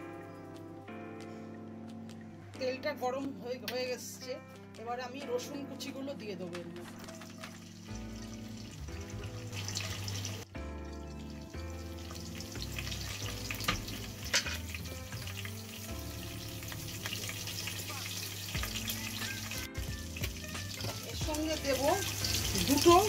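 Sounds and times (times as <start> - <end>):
background music: 0.0 - 23.0
garlic sizzling in oil: 7.0 - 10.5, 11.2 - 23.0.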